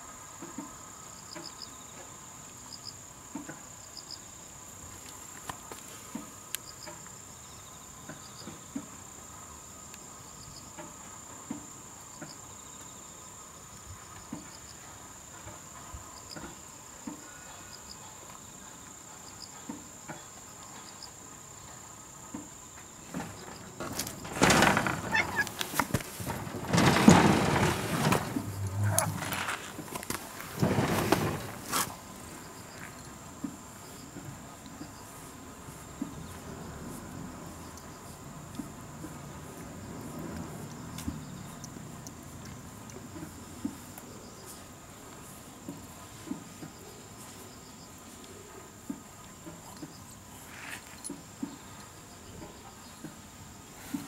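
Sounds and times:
insects trilling and chirping: 0.0 - 54.0
loud rustling and scraping: 23.0 - 32.9.

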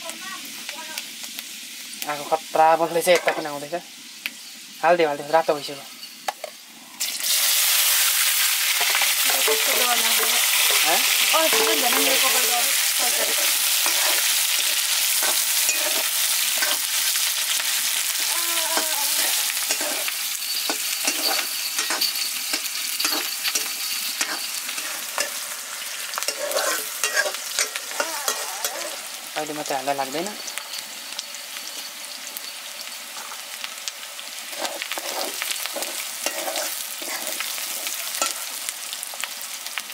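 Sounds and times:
onions sizzling in hot oil: 0.0 - 39.9
spatula scraping a pan: 7.6 - 29.1, 34.4 - 38.6.

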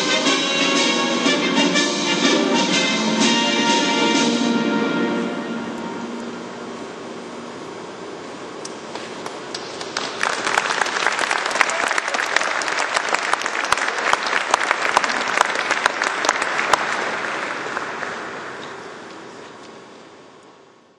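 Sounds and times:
audience applauding: 9.2 - 19.1.

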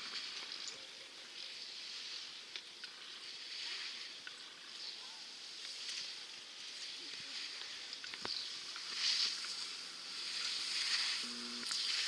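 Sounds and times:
skis scraping on snow: 5.5 - 12.0.

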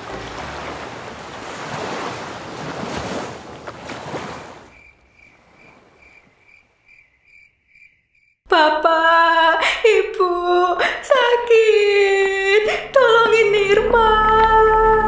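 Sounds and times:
cricket chirping: 4.6 - 8.4.

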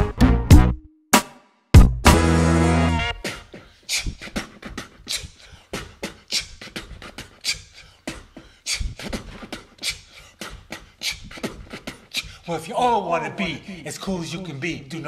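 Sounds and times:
man beatboxing: 3.2 - 15.0.

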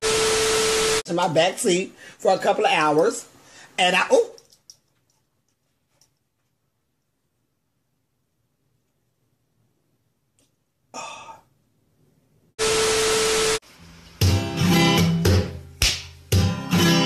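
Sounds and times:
strummed acoustic guitar music: 14.2 - 17.0.

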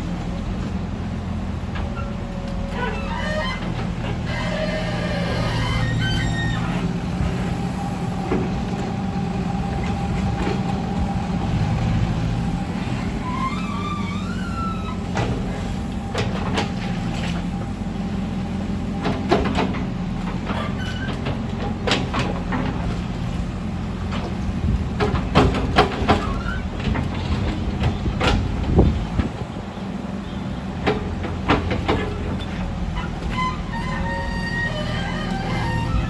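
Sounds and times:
diesel engine running under load: 0.0 - 36.0
rising squeal: 2.0 - 6.9, 12.8 - 15.1, 33.0 - 36.0
excavator bucket clanks: 25.0 - 29.6, 30.8 - 34.1.

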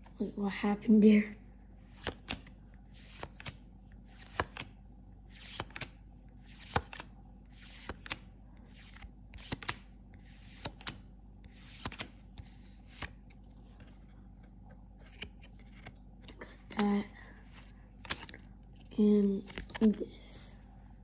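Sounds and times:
cards sliding rustles: 1.8 - 20.0
cards snapping: 3.1 - 3.6, 5.4 - 5.9, 6.6 - 9.9, 10.6 - 11.0, 11.7 - 13.1, 18.0 - 18.5.

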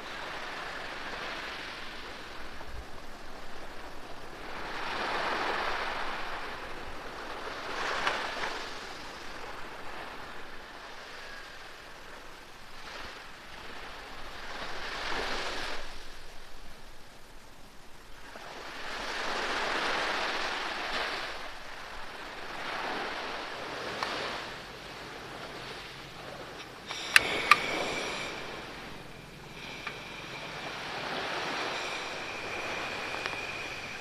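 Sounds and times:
sea waves washing onto beach: 0.0 - 34.0
sharp metallic clicks: 26.6 - 28.4.

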